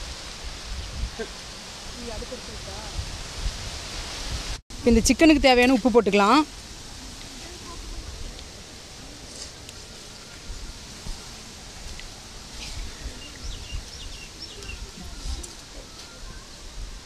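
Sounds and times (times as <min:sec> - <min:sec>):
faint hiss: 0:00.0 - 0:17.0
low uneven rumble: 0:06.4 - 0:17.0.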